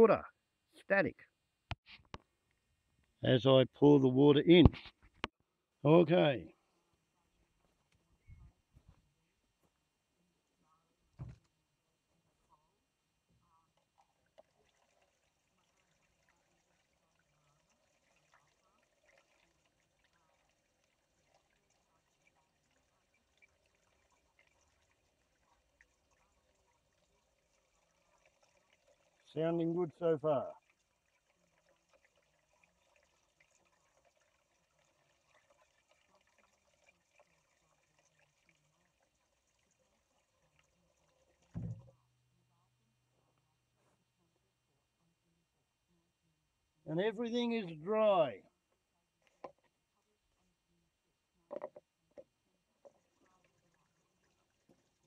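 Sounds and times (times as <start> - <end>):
faint trickle of water poured: 6.5 - 42.4, 51.7 - 55.0.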